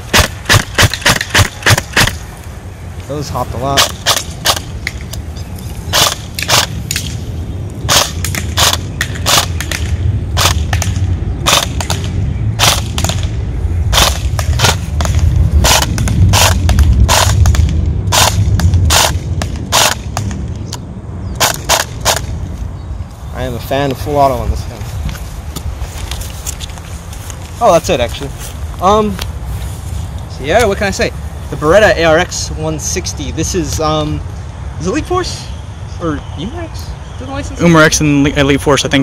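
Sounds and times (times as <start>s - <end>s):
airsoft rifle shots: 0.0s - 2.2s, 3.7s - 5.0s, 5.9s - 7.2s, 7.9s - 20.4s, 21.4s - 22.3s
low rumble: 1.4s - 34.6s.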